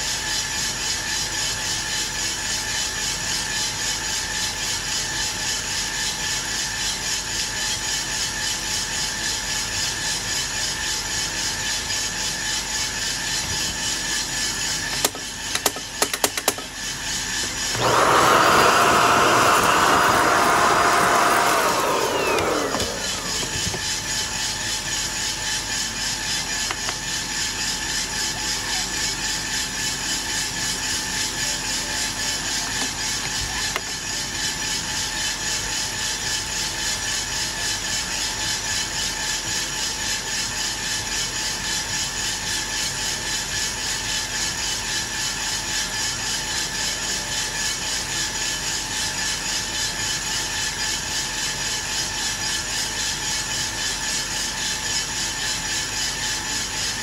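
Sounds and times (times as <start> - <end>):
coffee beans tumbling in drum: 9.8 - 57.0
fan humming: 10.7 - 35.0.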